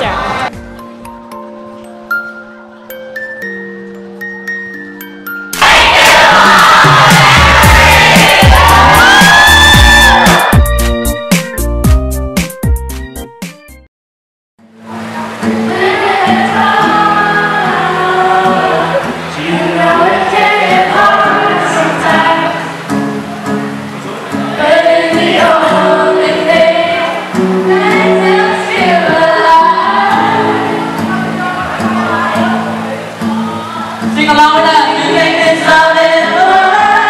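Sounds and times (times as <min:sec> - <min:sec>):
group of voices singing: 0:05.6 - 0:10.5, 0:15.4 - 0:22.9, 0:24.0 - 0:34.0, 0:34.6 - 0:37.0.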